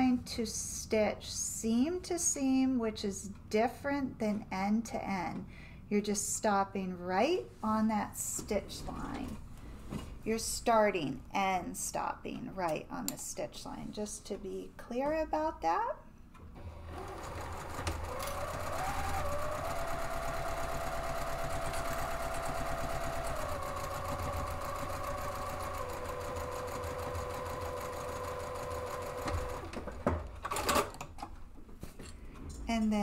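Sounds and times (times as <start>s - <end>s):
sewing machine stitching: 16.6s - 31.0s.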